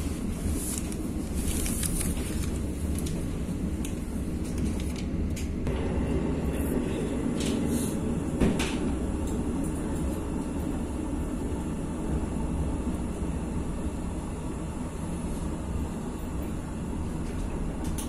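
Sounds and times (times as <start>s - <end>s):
train rumble inside carriage: 0.0s - 18.0s.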